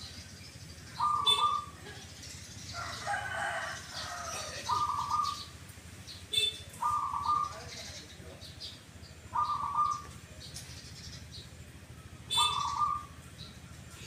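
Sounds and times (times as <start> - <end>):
sharp bird chirps: 0.0 - 2.9, 12.3 - 14.0
low busy bird call: 0.0 - 14.0
dove cooing: 0.9 - 2.1, 2.8 - 5.5, 6.4 - 7.9, 9.3 - 11.1, 12.2 - 14.0.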